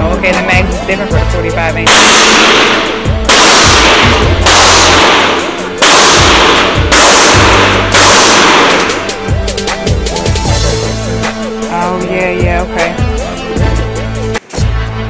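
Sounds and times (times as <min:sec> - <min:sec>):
hip-hop music: 0:00.0 - 0:15.0
echoing gunshots: 0:01.8 - 0:10.5.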